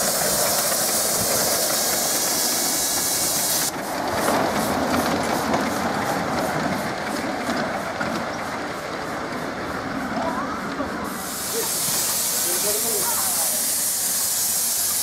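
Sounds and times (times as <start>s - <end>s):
steam safety valve hissing: 0.0s - 3.7s, 11.1s - 15.0s
train wheels clicking: 0.0s - 15.0s.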